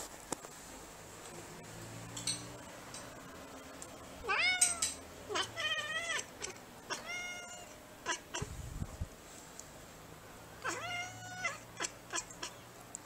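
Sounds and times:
cat meowing: 4.2s - 8.5s, 10.6s - 12.6s.

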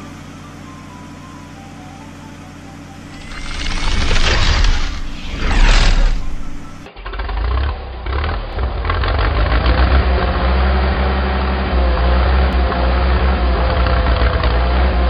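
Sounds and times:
faint wavering whine: 0.0s - 6.9s.

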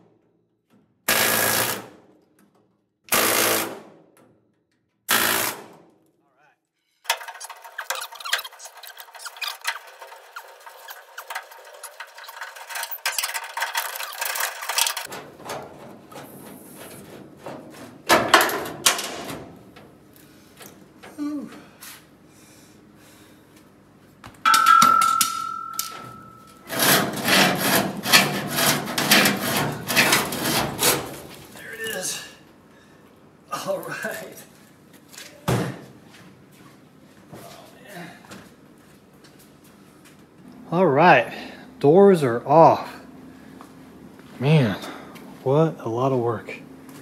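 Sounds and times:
metal clanks and knocks: 7.1s - 19.9s, 24.5s - 31.2s.

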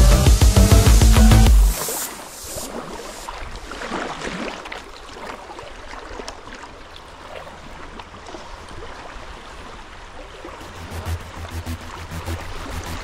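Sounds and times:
loud water splash: 1.4s - 5.4s, 9.6s - 13.0s
river water rushing: 1.6s - 13.0s.

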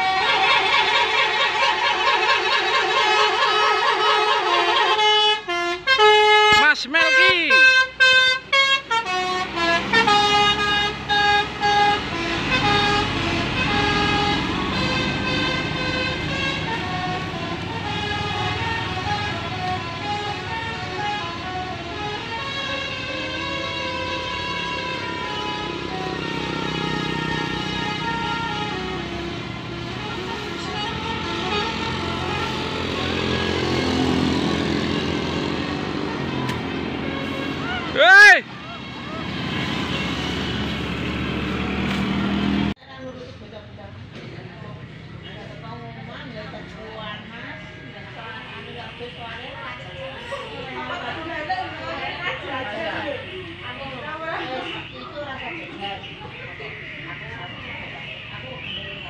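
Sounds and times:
musical bus horn tune: 0.0s - 42.8s
bus engine: 0.0s - 58.7s
passing traffic: 0.0s - 59.0s
vehicle passing close: 23.6s - 42.8s.

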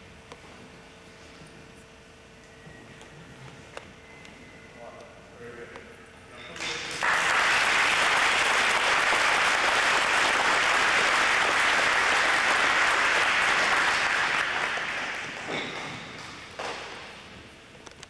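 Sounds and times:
audience applauding: 6.6s - 16.8s.

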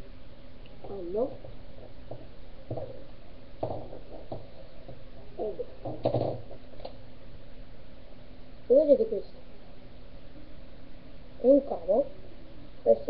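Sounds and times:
steady low hum: 0.0s - 13.0s
objects knocking and rustling: 0.8s - 7.0s.

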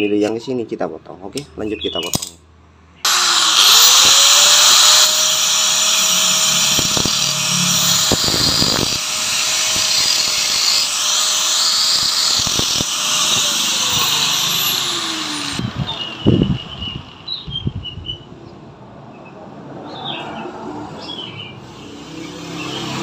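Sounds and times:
angle grinder cutting metal: 3.1s - 17.5s, 21.7s - 23.0s
angle grinder spinning down: 3.1s - 17.5s.

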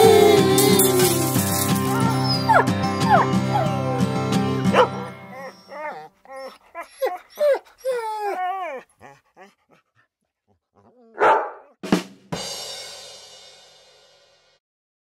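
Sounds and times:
dog whining: 0.0s - 4.0s, 4.7s - 11.8s
dog barking: 4.7s - 5.1s, 11.1s - 11.8s.

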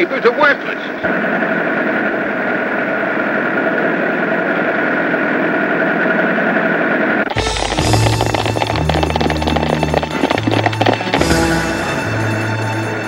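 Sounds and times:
truck engine rattling drone: 1.1s - 13.0s
music: 7.3s - 13.0s
rapid clattering: 7.3s - 13.0s.

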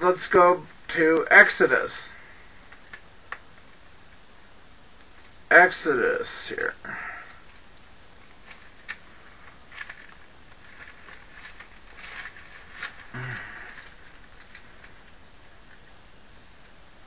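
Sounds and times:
handling rustles: 7.4s - 15.2s.

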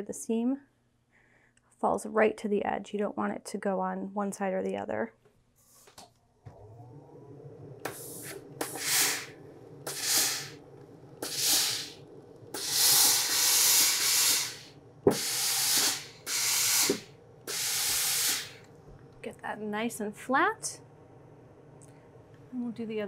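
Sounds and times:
faint low hum: 6.2s - 23.0s
steam iron hissing: 7.8s - 10.6s, 11.2s - 18.7s.

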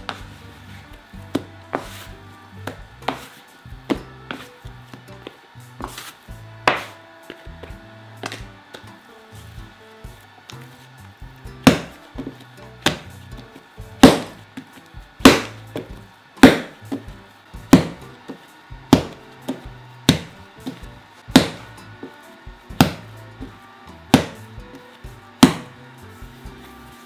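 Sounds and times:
dough slapping on countertop: 1.2s - 7.0s, 7.6s - 8.8s, 11.6s - 21.8s, 22.7s - 23.2s, 24.1s - 25.8s.

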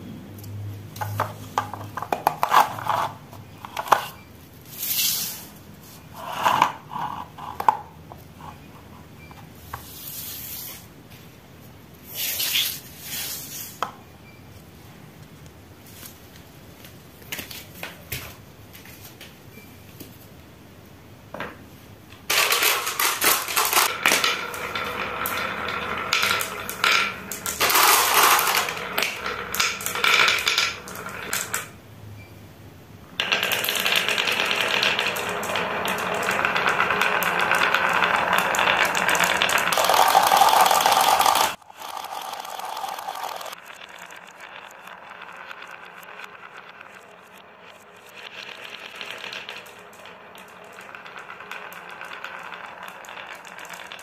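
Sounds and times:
marbles rattling down wooden run: 22.3s - 31.7s, 33.2s - 54.0s.

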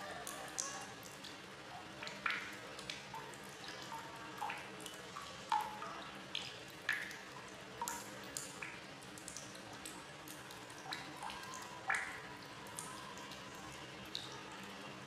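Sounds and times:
water plinking and plopping: 10.3s - 13.5s.

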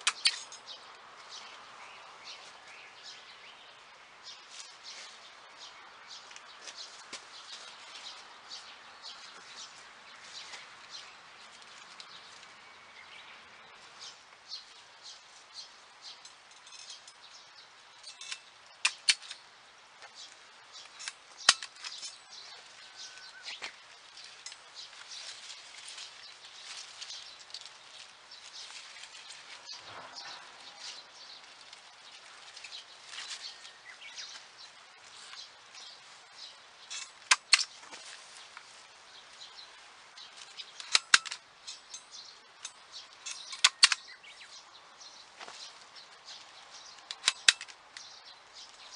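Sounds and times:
sharp clicks: 0.0s - 0.5s, 18.1s - 19.4s, 36.9s - 37.7s, 40.7s - 42.0s, 42.6s - 44.2s, 47.0s - 48.1s.

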